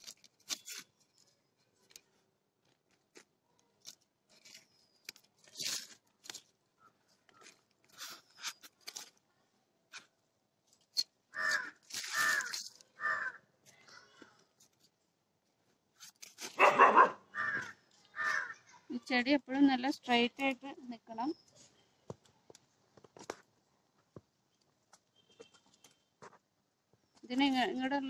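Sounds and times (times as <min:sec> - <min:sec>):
crow cawing: 0:11.3 - 0:13.5, 0:17.3 - 0:18.6
hands rustling in soil: 0:11.4 - 0:12.9.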